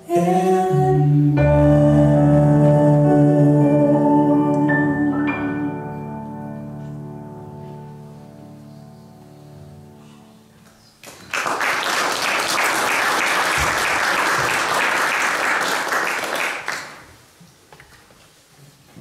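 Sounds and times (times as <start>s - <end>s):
congregation applauding: 11.0s - 17.2s.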